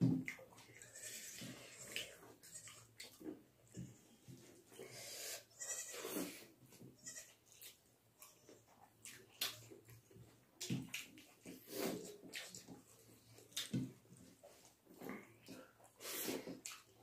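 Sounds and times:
mouth smacking and chewing: 0.2 - 3.4, 7.5 - 17.0.

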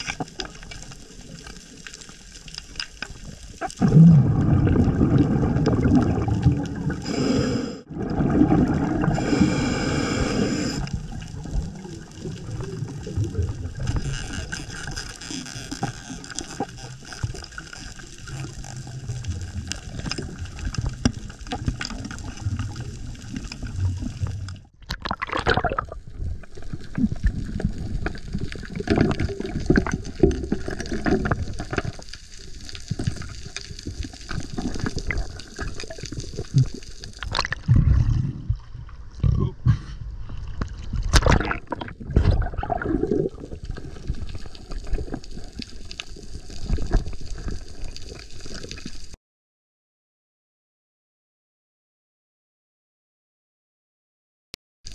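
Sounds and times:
underwater breathing bubbles: 3.6 - 14.9, 41.2 - 45.8.

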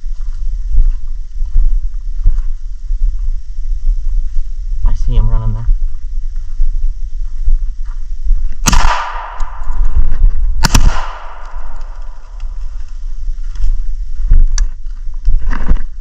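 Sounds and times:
wind rumbling on microphone: 0.0 - 16.0
shotgun shots with echo: 8.6 - 9.9, 10.6 - 12.2.

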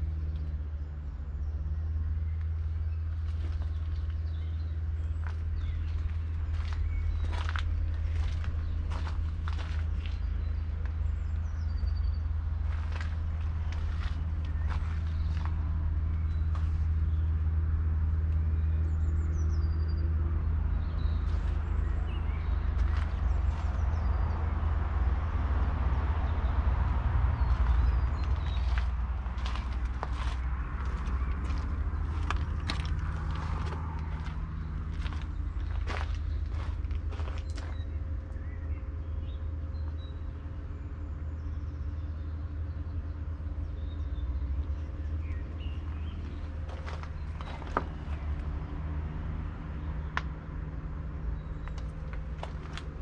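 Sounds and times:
diesel engine idling: 0.0 - 53.0.

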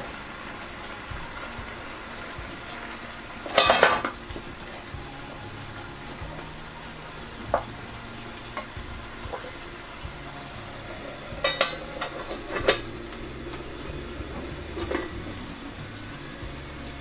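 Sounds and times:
metal pot lids clinking: 3.4 - 4.8, 11.4 - 13.7, 14.8 - 15.3.

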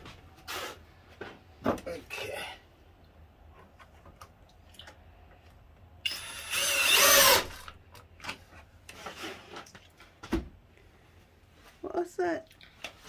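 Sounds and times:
cordless drill whine: 6.0 - 7.7.

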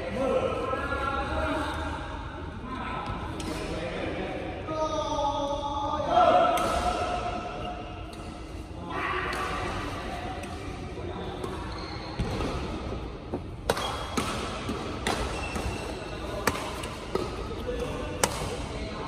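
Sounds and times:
rackets striking shuttlecock: 13.6 - 17.4.

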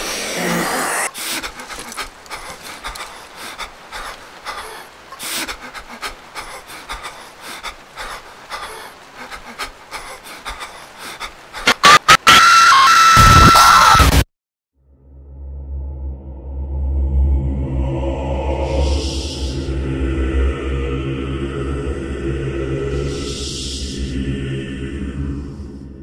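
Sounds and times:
person panting: 0.4 - 11.8
rustling movement: 1.1 - 4.4
harsh distorted screech: 11.7 - 14.2.

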